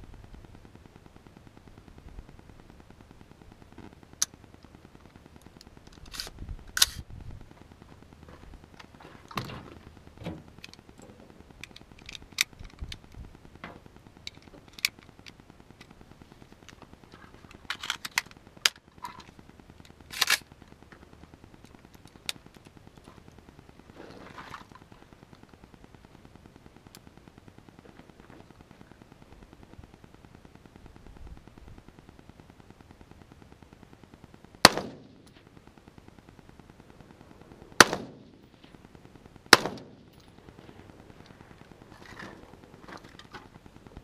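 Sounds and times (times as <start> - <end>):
rifle clicks and clacks: 5.6 - 7.0, 10.6 - 13.2, 14.2 - 16.0, 16.6 - 20.5.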